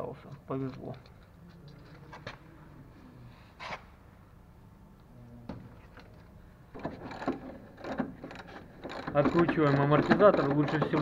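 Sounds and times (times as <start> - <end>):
metal tools clicking and knocking: 6.8 - 11.0.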